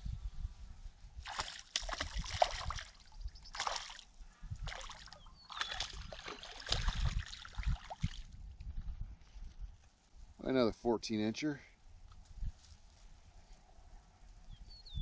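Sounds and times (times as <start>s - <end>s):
fish splashing and thrashing: 1.2s - 8.3s.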